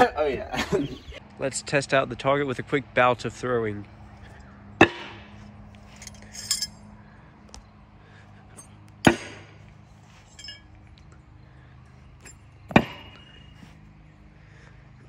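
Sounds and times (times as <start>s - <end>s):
metallic clink of knives: 5.9s - 6.8s, 10.3s - 10.7s.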